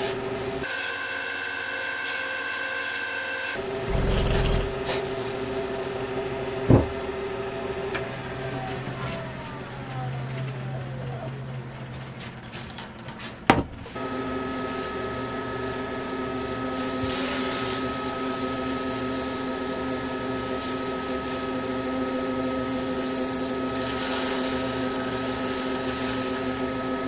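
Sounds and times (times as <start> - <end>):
lathe motor humming and whining: 0.0 - 12.1.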